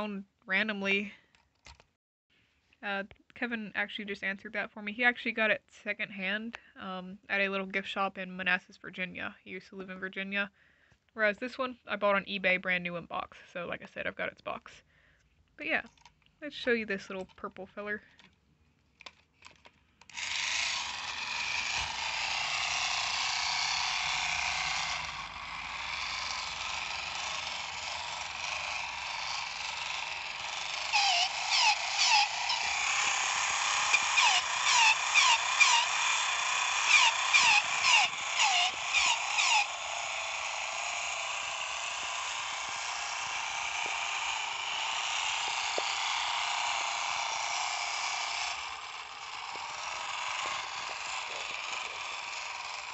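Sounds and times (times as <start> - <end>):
toy robot motor whirring: 19.0 - 52.9.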